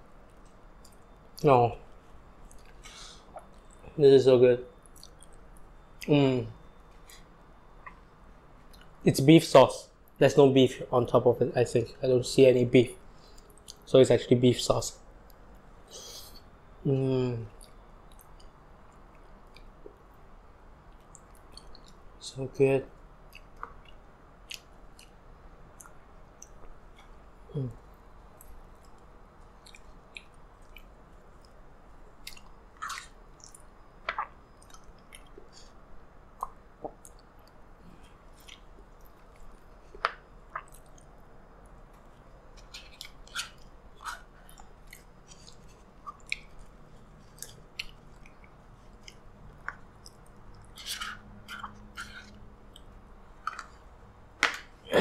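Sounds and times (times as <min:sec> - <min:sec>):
wet chewing and lip smacks: 0:02.4 - 0:03.8, 0:04.8 - 0:06.1, 0:17.5 - 0:20.2, 0:20.8 - 0:22.0, 0:23.0 - 0:27.2, 0:28.3 - 0:31.6, 0:32.2 - 0:53.8.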